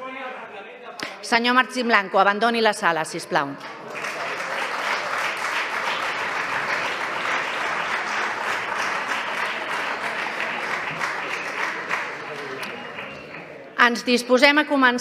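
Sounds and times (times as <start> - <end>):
crowd applauding: 3.6 - 13.6.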